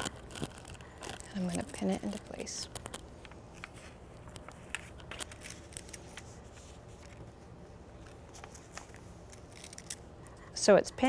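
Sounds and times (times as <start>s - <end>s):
paper rustling: 3.5s - 7.4s, 8.0s - 10.0s.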